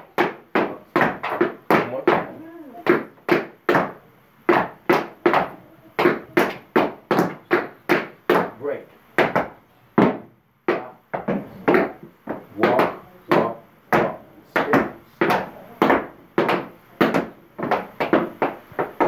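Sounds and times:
tap shoes striking floor: 0.0 - 8.6, 9.2 - 19.0.

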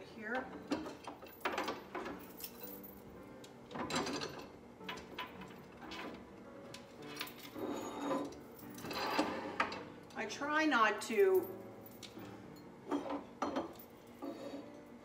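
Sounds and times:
knocks and clinks on wooden shelf: 0.5 - 3.0, 3.7 - 9.9, 12.9 - 14.8.

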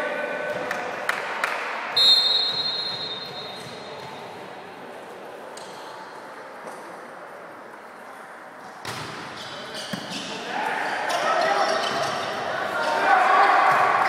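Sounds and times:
referee's whistle blast: 2.0 - 3.6.

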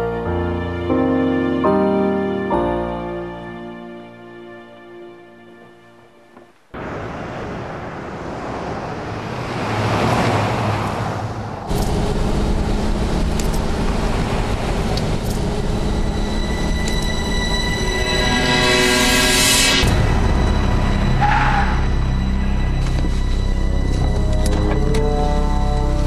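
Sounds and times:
car driving by: 6.8 - 26.0
engine and road rumble inside car: 11.3 - 17.2
tense music tones: 11.3 - 26.0.

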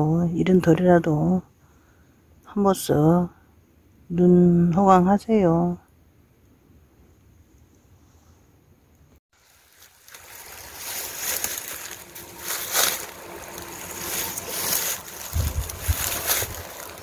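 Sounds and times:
footsteps through dry grass: 9.3 - 17.0
wind buffeting microphone: 15.2 - 16.8.

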